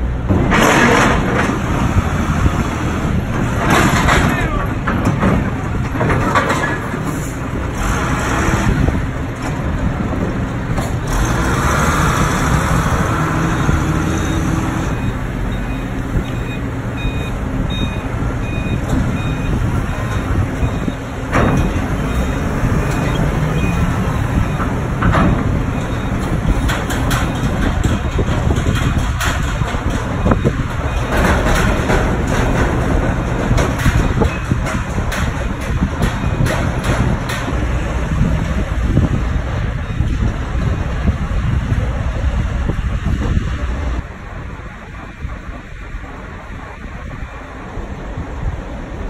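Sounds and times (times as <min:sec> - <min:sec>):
forklift engines running: 0:00.0 - 0:49.0
reversing beeper: 0:13.4 - 0:24.7.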